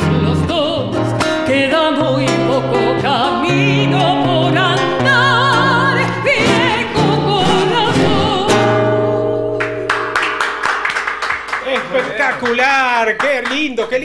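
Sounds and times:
woman singing folk song: 0.0s - 9.8s
acoustic guitar: 0.0s - 12.7s.

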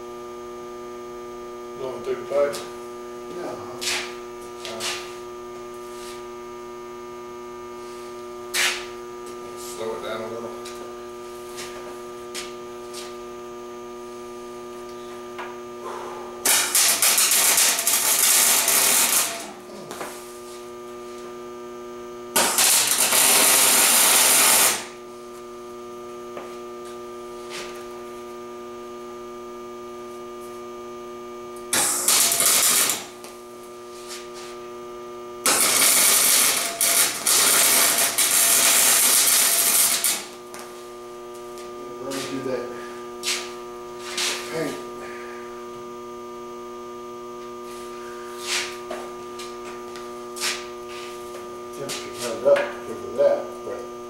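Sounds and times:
electric welder humming: 0.0s - 54.0s
crackling welding arc: 16.4s - 19.5s, 22.4s - 25.0s, 31.7s - 33.2s, 35.4s - 40.4s.

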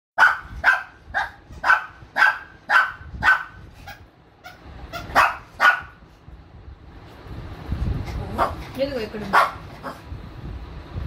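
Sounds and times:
dog barking: 0.2s - 4.0s, 5.0s - 6.0s, 9.3s - 10.0s.

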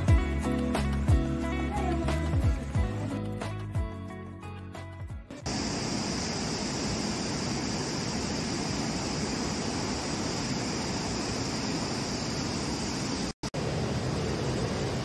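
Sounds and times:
steady rushing noise: 5.5s - 15.0s.

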